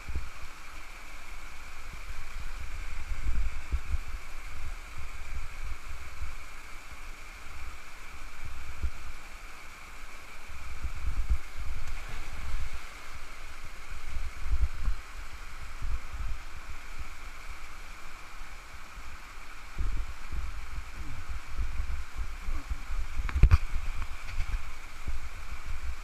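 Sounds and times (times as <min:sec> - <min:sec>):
water rushing over rocks: 0:00.0 - 0:26.0
wind buffeting microphone: 0:01.8 - 0:06.5, 0:10.6 - 0:17.2, 0:19.6 - 0:26.0.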